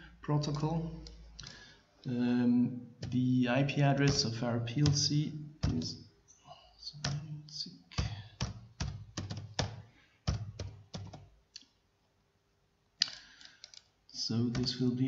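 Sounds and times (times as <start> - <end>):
keyboard typing: 3.0 - 3.3, 4.0 - 6.0, 6.9 - 7.3, 8.0 - 11.4, 13.0 - 14.9.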